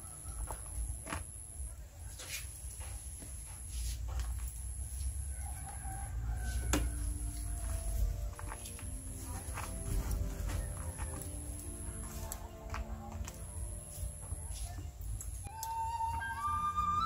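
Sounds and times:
rooster crowing: 0:00.0 - 0:00.8, 0:05.2 - 0:07.9.

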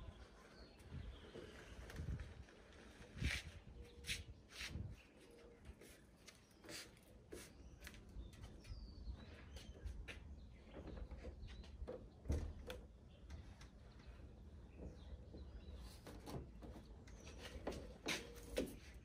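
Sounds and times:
birds chirping: 0:00.0 - 0:19.0
faint footsteps: 0:16.6 - 0:19.0.

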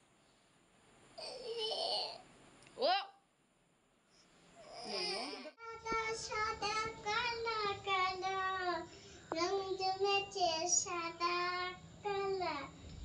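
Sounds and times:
girl singing unaccompanied: 0:05.4 - 0:12.9.

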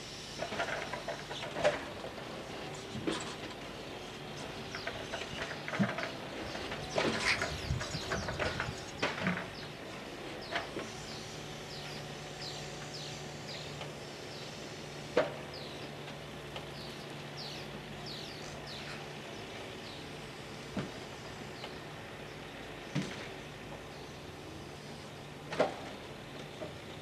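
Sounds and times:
truck idling: 0:00.0 - 0:27.0
birds chirping: 0:03.7 - 0:25.4
wooden knocks of logs: 0:20.7 - 0:21.0.

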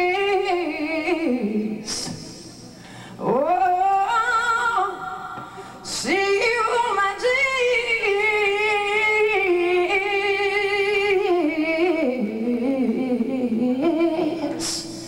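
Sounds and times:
quick breath: 0:02.8 - 0:03.2.

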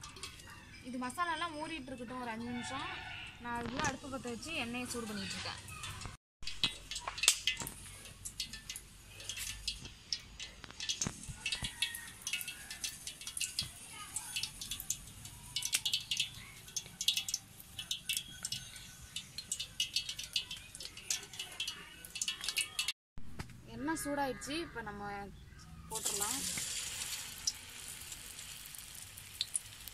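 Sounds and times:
wood fire crackling: 0:03.6 - 0:22.9, 0:25.9 - 0:29.9.

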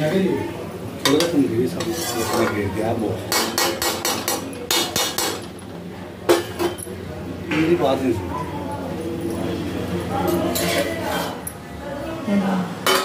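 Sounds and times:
metal spoon scraping a steel pan: 0:01.8 - 0:02.6.

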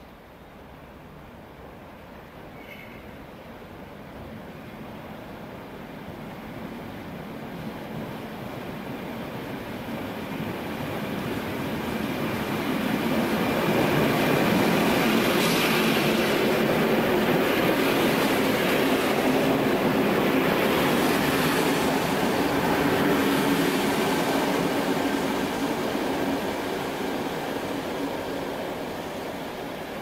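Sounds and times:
train wheels on rail: 0:00.0 - 0:30.0.

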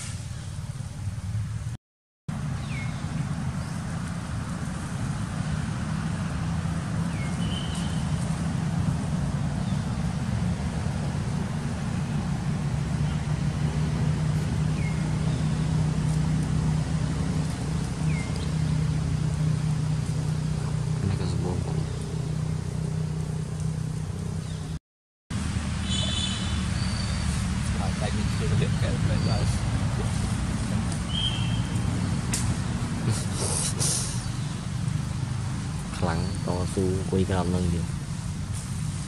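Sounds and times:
low motor hum: 0:00.4 - 0:24.8.

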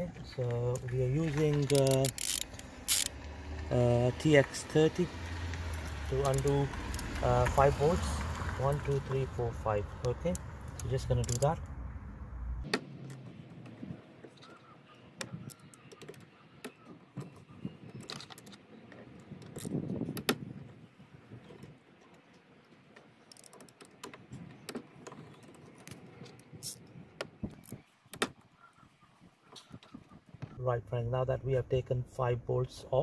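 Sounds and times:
tool handling noise: 0:00.4 - 0:03.1
hand driver clicking on bolts: 0:01.5 - 0:03.1.

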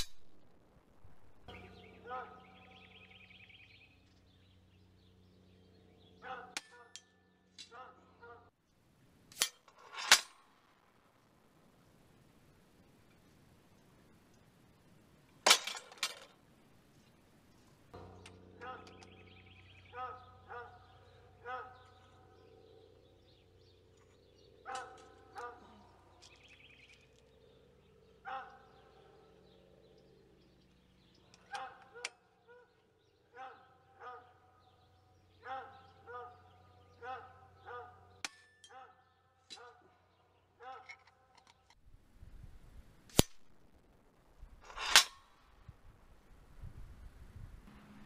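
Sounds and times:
bird chirping: 0:00.0 - 0:08.8, 0:16.4 - 0:41.8
distant dog barking: 0:02.0 - 0:02.6, 0:06.2 - 0:07.0, 0:07.6 - 0:08.5, 0:19.8 - 0:22.6, 0:24.6 - 0:26.2, 0:28.1 - 0:29.4, 0:31.2 - 0:41.0
metal target cracks with ring: 0:44.7 - 0:45.4.

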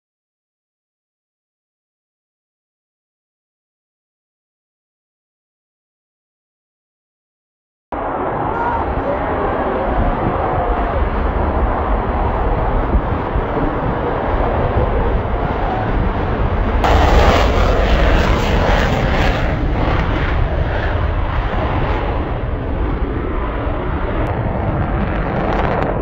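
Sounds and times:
jet engines roaring: 0:08.0 - 0:26.0.

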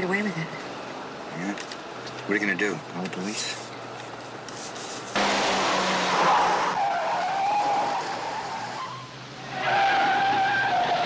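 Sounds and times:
car tyres squealing: 0:05.2 - 0:11.0.

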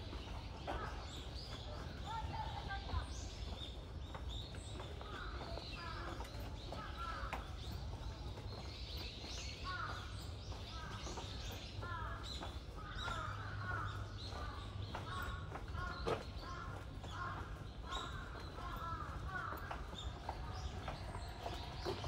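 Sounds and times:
crows cawing: 0:05.0 - 0:07.6, 0:09.6 - 0:22.0.

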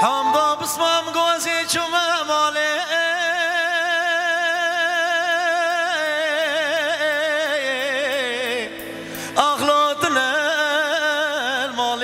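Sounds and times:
man singing a held note: 0:00.0 - 0:03.5.

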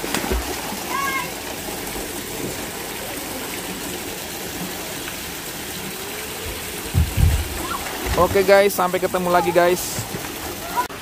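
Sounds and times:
water falling and splashing: 0:00.0 - 0:11.0
low thuds: 0:06.5 - 0:08.5.

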